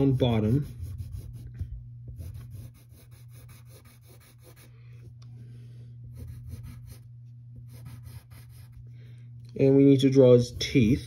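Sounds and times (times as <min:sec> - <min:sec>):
pencil scratching on paper: 0:00.0 - 0:04.7, 0:06.1 - 0:07.0, 0:07.7 - 0:08.8, 0:10.1 - 0:11.0
steady low hum: 0:00.0 - 0:11.0.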